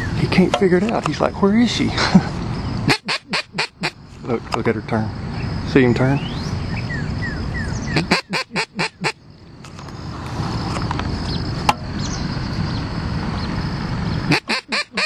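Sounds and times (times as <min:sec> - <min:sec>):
outdoor background hiss: 0:00.0 - 0:15.0
duck call quacks: 0:02.9 - 0:04.0, 0:07.9 - 0:09.2, 0:14.3 - 0:15.0.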